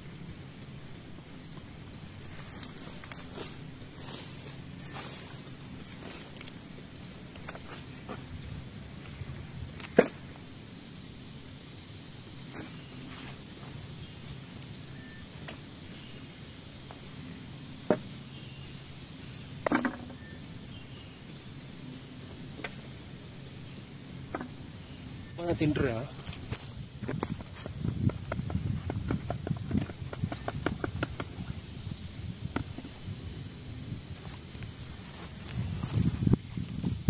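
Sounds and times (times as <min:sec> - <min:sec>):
small bird chirping: 0:01.0 - 0:01.8, 0:02.4 - 0:10.9, 0:12.5 - 0:26.8, 0:27.6 - 0:33.0, 0:34.2 - 0:36.7
wood knocking: 0:19.6 - 0:20.2.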